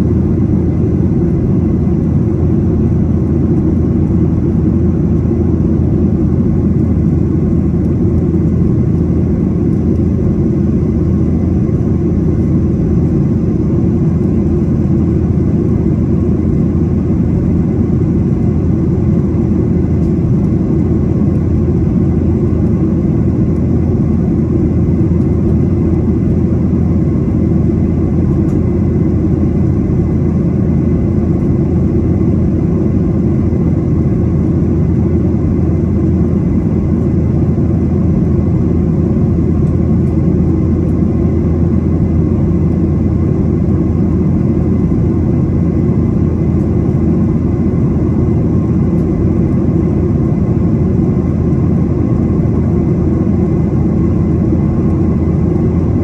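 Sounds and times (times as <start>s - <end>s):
faint steady whine: 0.0s - 56.0s
jet engine drone in cabin: 0.0s - 56.0s.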